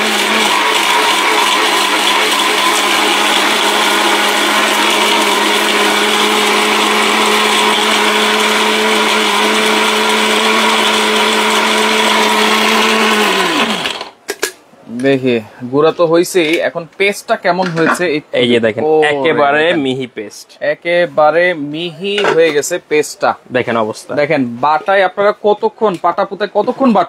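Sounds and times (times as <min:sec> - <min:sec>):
electric blender running: 0:00.0 - 0:14.2.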